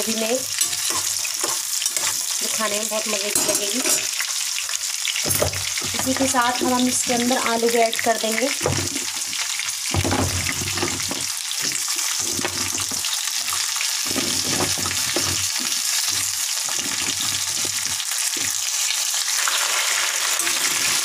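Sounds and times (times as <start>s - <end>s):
vegetables sizzling in hot oil: 0.0s - 21.0s.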